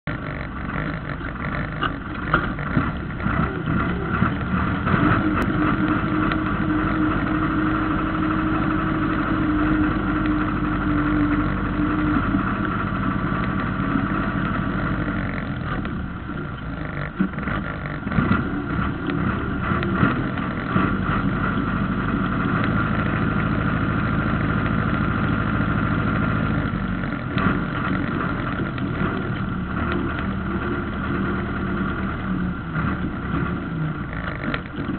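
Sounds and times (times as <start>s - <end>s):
tractor diesel engine under load: 0.0s - 34.9s
knocks and rattles: 0.1s - 7.7s.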